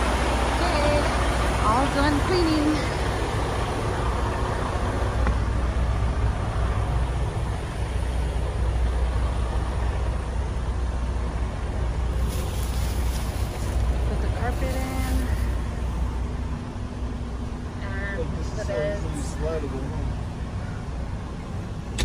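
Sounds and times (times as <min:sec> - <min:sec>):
machine running with low rumble: 0:00.0 - 0:22.0.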